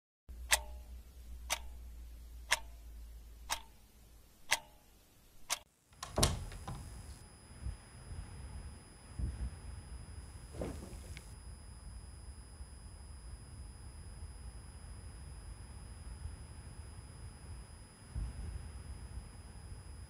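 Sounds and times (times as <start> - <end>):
clock ticking: 0.4 - 3.8, 4.4 - 4.8
soft thumps: 10.5 - 11.3.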